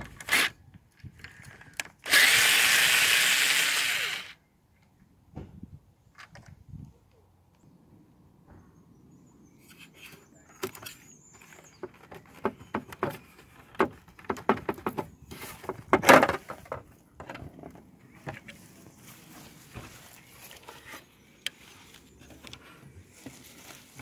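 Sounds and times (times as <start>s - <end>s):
plastic scraping: 9.8s - 18.6s.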